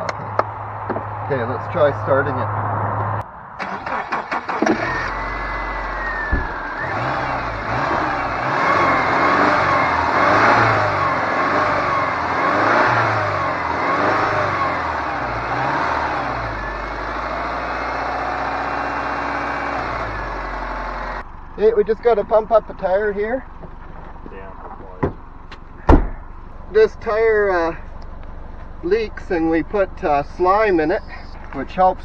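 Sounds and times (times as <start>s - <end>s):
car engine cranking and revving: 0.0s - 32.0s.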